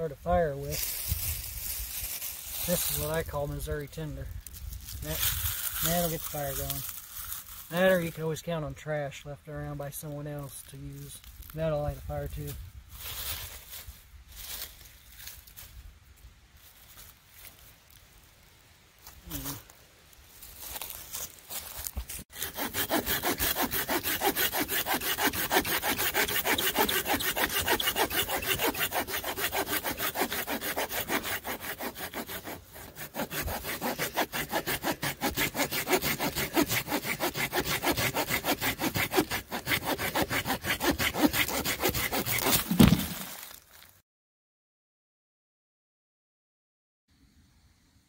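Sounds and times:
hand saw rasping through log: 22.3s - 43.2s
wood piece dropping with thump: 42.6s - 43.3s.

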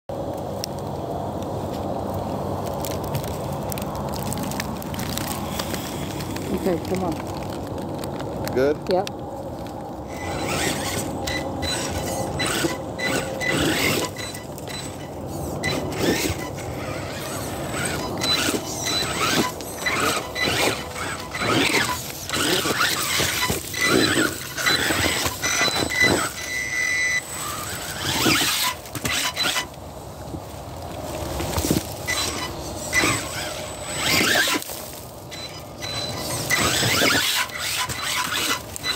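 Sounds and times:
tyres clattering over rocks: 2.2s - 38.9s
electric motor whine: 10.0s - 29.8s, 31.4s - 38.9s.

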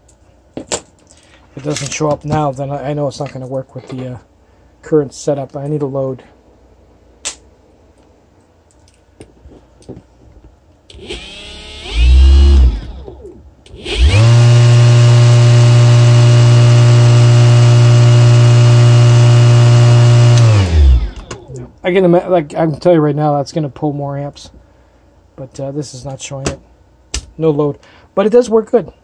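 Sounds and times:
electric motor whine: 10.9s - 21.4s.

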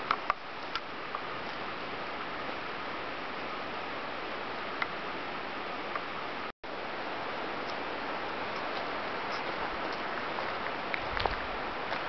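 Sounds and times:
outdoor background hiss: 0.0s - 12.0s.

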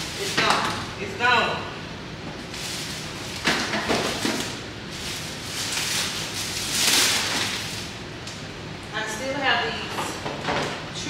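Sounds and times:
plastic bags rustling: 0.0s - 1.0s, 2.4s - 8.0s.

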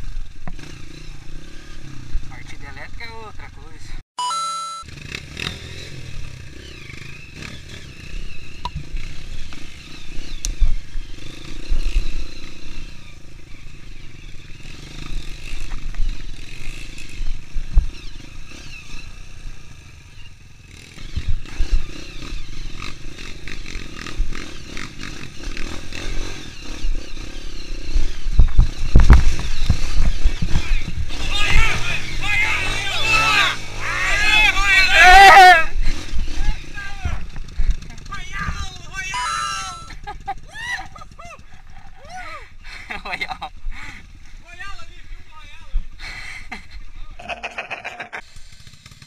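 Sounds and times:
dirt bike engine under load: 28.1s - 33.4s.

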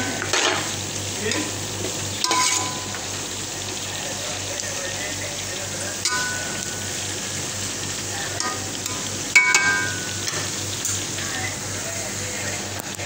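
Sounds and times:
vegetables sizzling in a pan: 0.0s - 13.0s
metal spoon clinking on pan: 2.2s - 3.0s, 6.0s - 6.7s, 8.4s - 11.0s.

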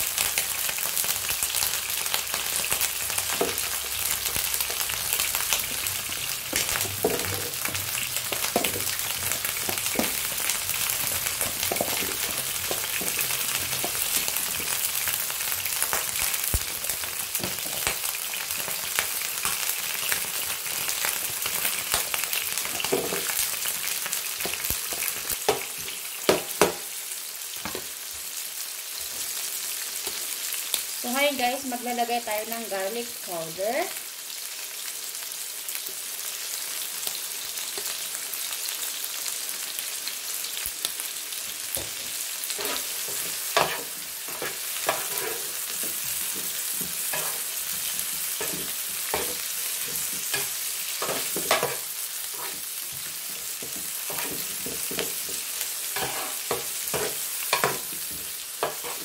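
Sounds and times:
food sizzling in hot oil: 0.0s - 59.0s.

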